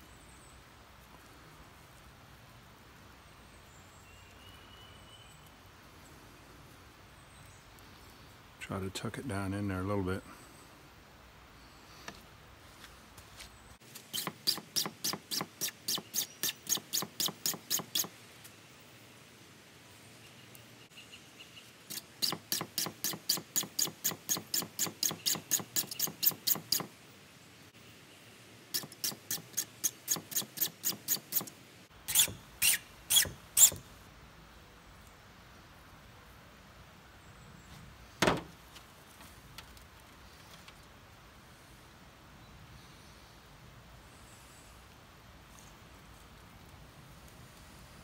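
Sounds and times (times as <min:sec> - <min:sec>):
lighter flint wheel scratching: 0:14.1 - 0:18.1, 0:21.9 - 0:26.9, 0:28.7 - 0:31.5, 0:32.1 - 0:33.8.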